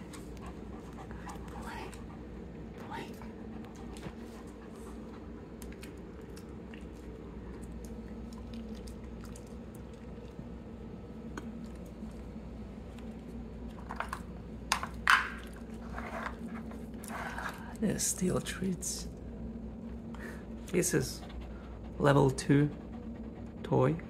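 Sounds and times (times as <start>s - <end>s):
dog crunching treats: 5.5s - 10.4s.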